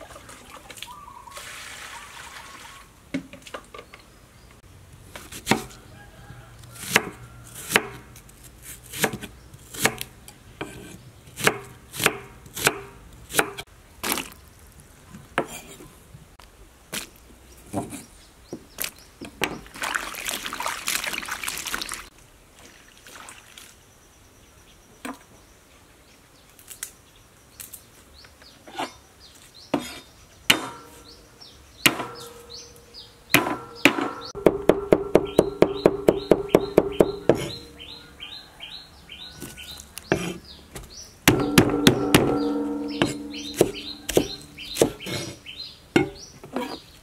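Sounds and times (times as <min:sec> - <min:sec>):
water splash: 0:00.0 - 0:02.9, 0:19.6 - 0:23.8
birds chirping: 0:00.1 - 0:01.5, 0:27.1 - 0:47.0
knife chopping on wooden board: 0:06.8 - 0:08.1, 0:08.8 - 0:13.6, 0:33.4 - 0:37.6, 0:40.1 - 0:42.4, 0:43.0 - 0:45.4.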